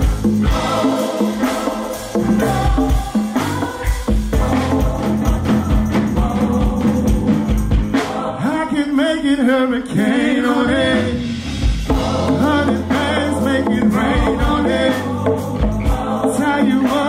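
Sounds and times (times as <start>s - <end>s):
live band playing: 0.0s - 17.0s
person singing: 12.0s - 17.0s.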